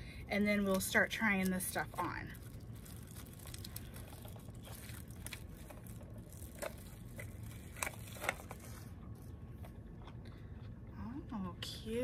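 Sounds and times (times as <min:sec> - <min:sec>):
paper packaging rustling: 0:01.5 - 0:09.3.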